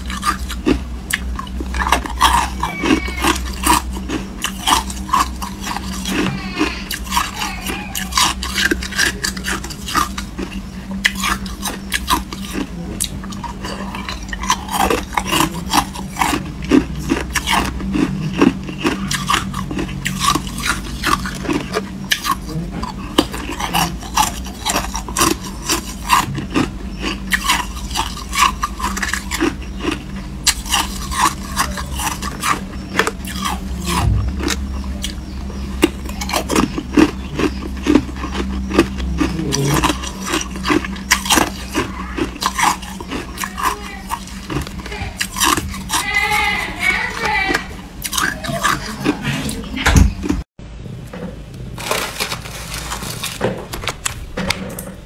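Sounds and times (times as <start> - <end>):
steady low hum: 0.0 - 55.0
ice cubes crunched by teeth: 51.8 - 54.2.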